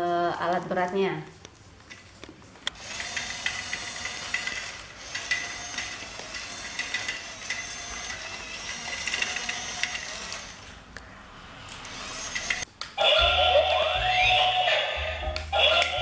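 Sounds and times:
rapid clicking of plastic gears: 2.7 - 10.7, 11.8 - 12.6
toy electric motors whirring: 2.7 - 10.8, 11.6 - 12.7.

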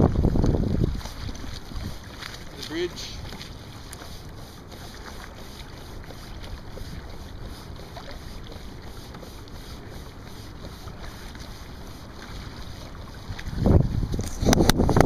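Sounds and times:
wind noise on microphone: 0.0 - 2.1, 13.2 - 15.0
water lapping against kayak hull: 0.0 - 15.0.

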